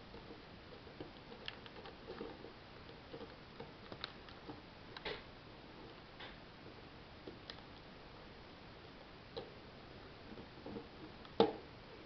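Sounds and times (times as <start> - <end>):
plastic bricks clicking and tapping: 3.1 - 5.2.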